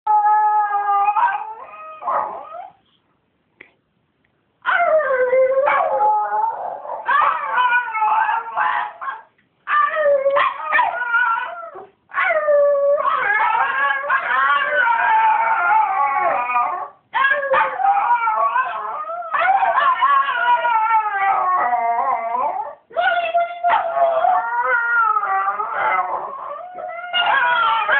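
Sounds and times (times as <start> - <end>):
dog howling: 9.7 - 27.9.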